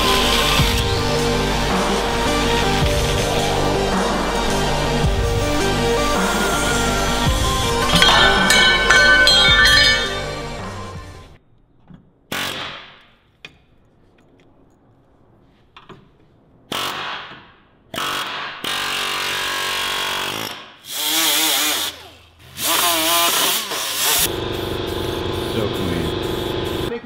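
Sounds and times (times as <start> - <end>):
pneumatic air tool whining: 18.0 - 26.9.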